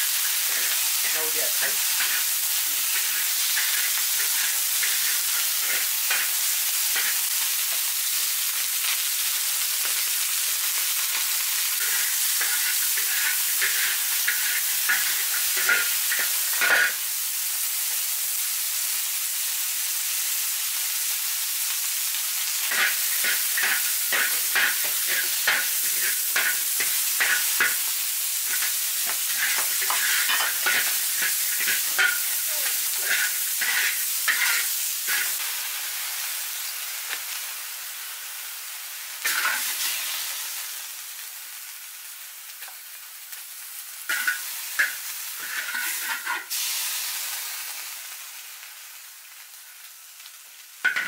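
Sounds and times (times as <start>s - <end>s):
meat sizzling in a wok: 0.0s - 51.0s
metal spatula scraping a wok: 0.4s - 6.3s, 11.8s - 17.0s, 22.7s - 27.8s, 28.4s - 35.4s, 39.2s - 39.9s, 44.1s - 46.6s.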